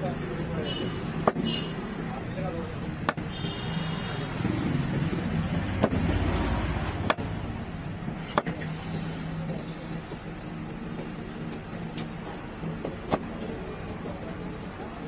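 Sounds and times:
knife chopping fish on wooden block: 1.1s - 1.5s, 5.7s - 6.2s.

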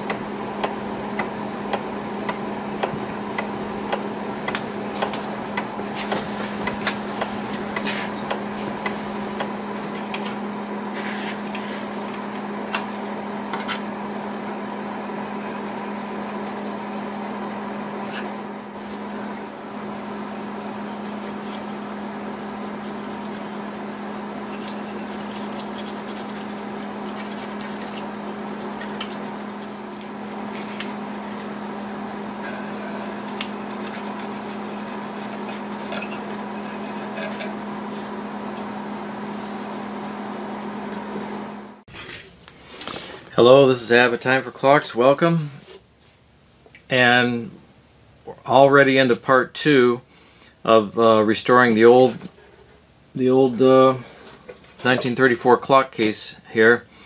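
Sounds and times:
steady low hum: 0.0s - 57.0s
clicks and scrapes on wood: 20.6s - 30.1s.

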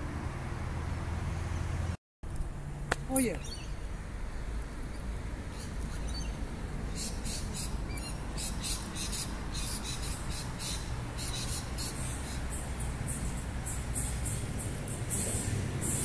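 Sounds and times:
small bird chirps: 3.1s - 3.8s, 4.9s - 16.0s.

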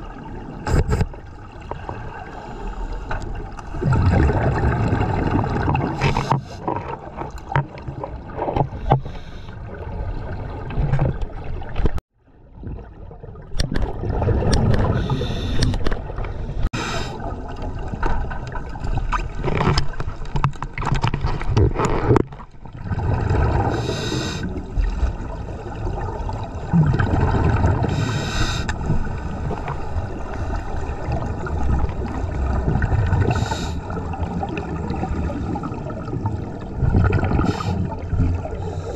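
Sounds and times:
rushing water underwater: 0.0s - 38.9s
gurgling bubble bursts: 3.7s - 6.0s, 22.7s - 24.0s, 24.6s - 28.1s, 30.8s - 38.6s.

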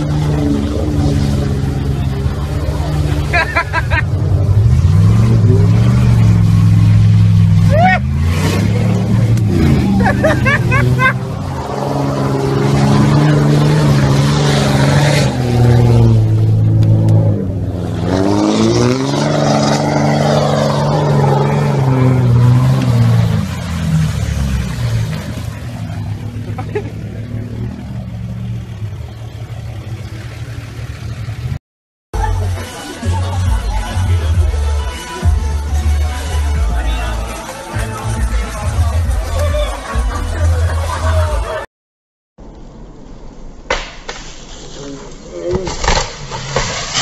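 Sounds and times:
truck engine revving: 0.0s - 31.6s, 45.3s - 47.0s.

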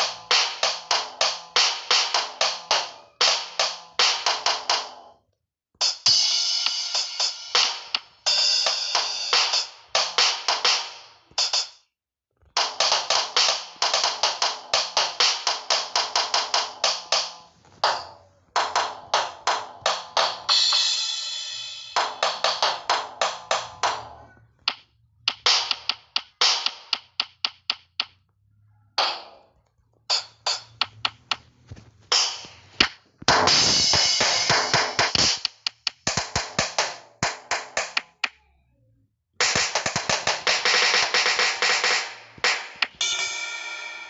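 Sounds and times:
sampled drums and cymbals: 5.8s - 11.8s, 18.7s - 24.0s, 32.1s - 37.7s, 39.4s - 44.0s.

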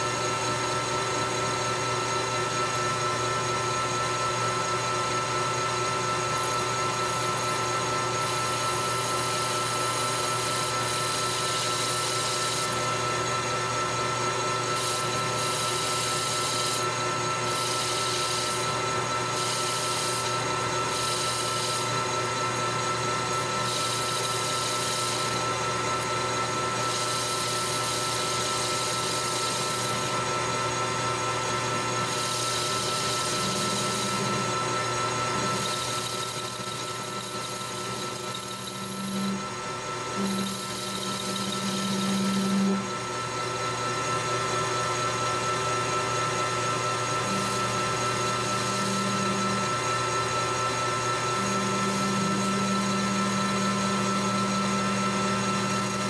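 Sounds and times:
lathe spindle whine: 0.0s - 56.0s
hiss of tool cutting metal: 17.5s - 21.9s.

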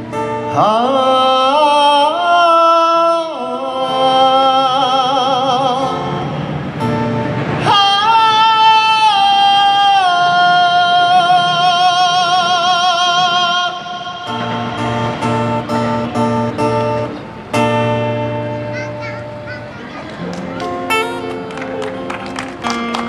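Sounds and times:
acoustic guitar strumming chords: 0.0s - 23.0s
man singing wordless high note: 0.5s - 6.3s, 7.6s - 15.5s.

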